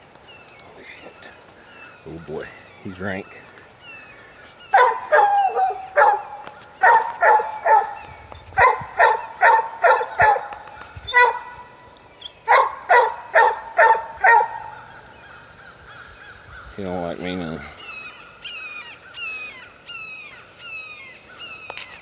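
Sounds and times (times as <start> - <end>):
dog barking: 4.7 - 8.0, 8.6 - 11.6, 12.5 - 14.8.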